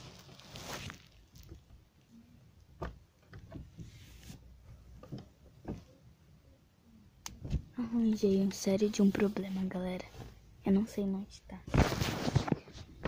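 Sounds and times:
rustling of bedding: 0.0s - 1.6s, 11.7s - 13.0s.

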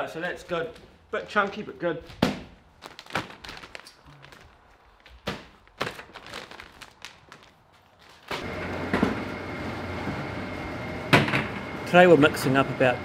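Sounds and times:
machine hum with high whine: 8.3s - 13.0s.

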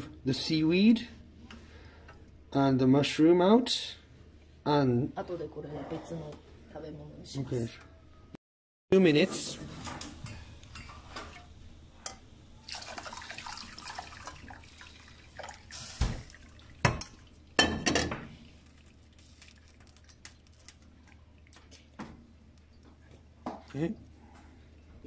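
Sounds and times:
liquid pouring through strainer: 12.6s - 17.4s, 18.4s - 21.9s
liquid dripping: 12.6s - 17.6s, 18.4s - 23.2s.

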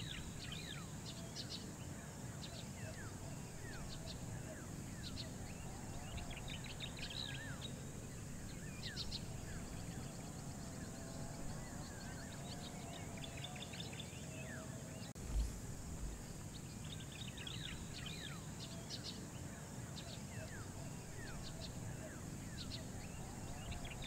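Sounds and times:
outdoor background hiss: 0.0s - 24.0s
wild birds trilling and chirping: 0.0s - 24.0s
low thud: 15.2s - 16.6s.

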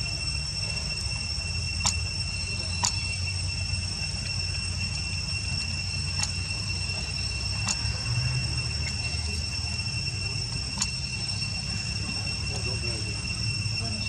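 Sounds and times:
insects droning: 0.0s - 14.0s
sharp clicks: 1.8s - 2.1s, 2.8s - 3.1s, 6.2s - 6.4s, 7.6s - 7.9s, 10.8s - 11.0s.

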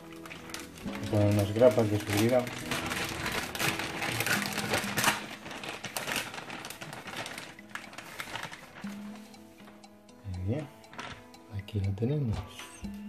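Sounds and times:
plastic bag crinkling: 0.0s - 9.0s, 10.9s - 11.2s.

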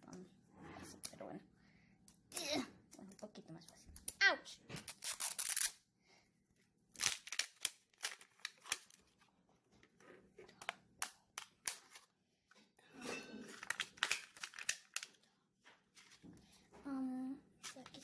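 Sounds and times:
plastic shell cracking and crinkling: 7.0s - 12.2s, 13.6s - 15.2s.

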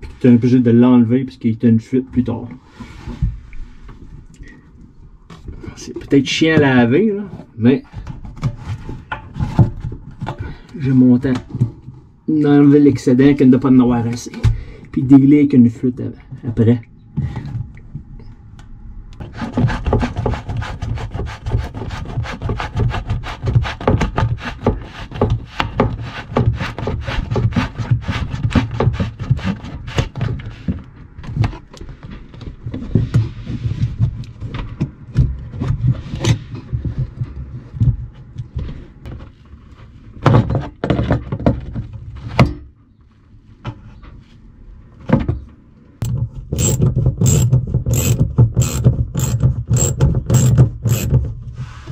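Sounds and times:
plastic hose fittings scraping: 46.0s - 51.9s
ratchet clicking: 46.6s - 51.1s.

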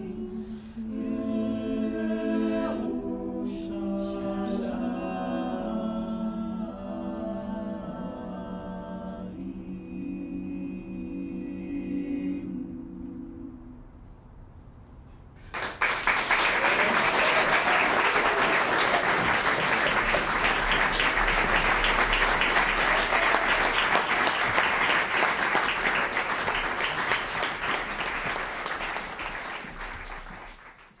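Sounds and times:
audience applauding: 15.5s - 31.0s.

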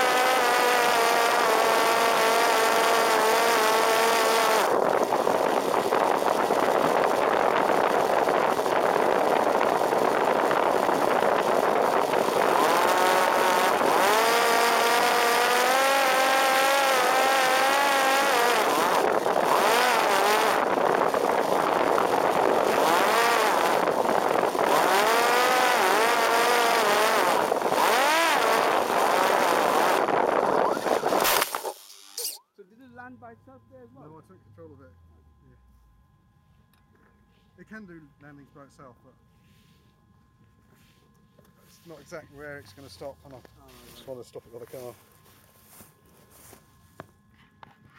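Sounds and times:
drone motor and propeller whining: 0.0s - 32.4s
wind rush: 4.5s - 14.0s, 18.6s - 25.0s, 27.2s - 31.8s.

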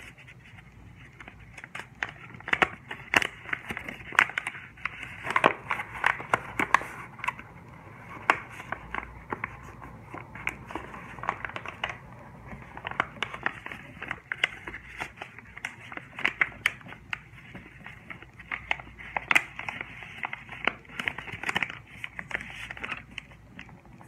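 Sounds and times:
paper crackles and taps: 0.0s - 24.0s
paper crinkling and rustling: 0.0s - 24.0s.

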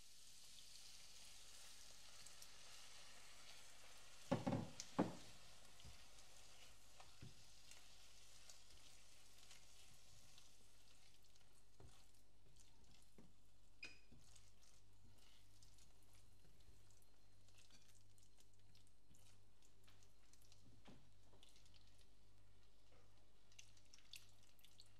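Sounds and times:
leeks sizzling in a pan: 0.0s - 15.5s.

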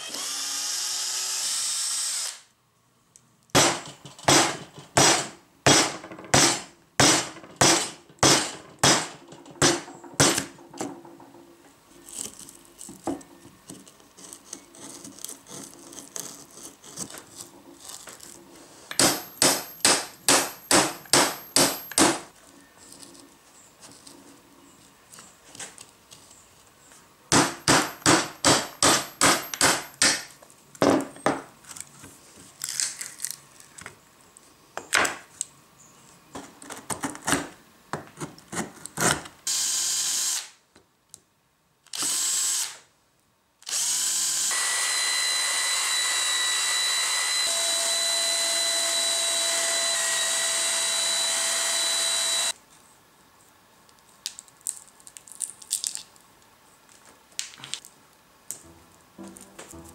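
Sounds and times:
cordless drill boring wood: 0.0s - 2.5s, 39.5s - 40.5s, 42.0s - 42.8s, 43.7s - 52.6s
knocks and scrapes: 5.9s - 19.3s
mallet striking wood chisel: 18.9s - 22.2s, 27.3s - 30.3s.

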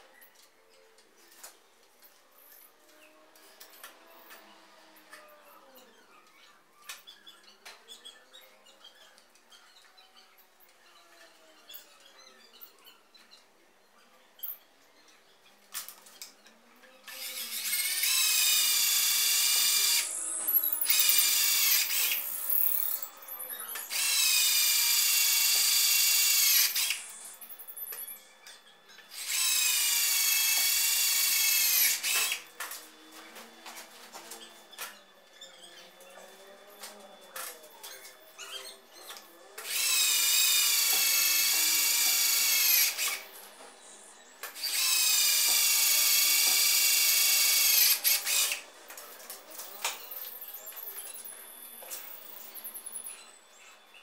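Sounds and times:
cordless drill whining through metal: 17.0s - 48.8s.

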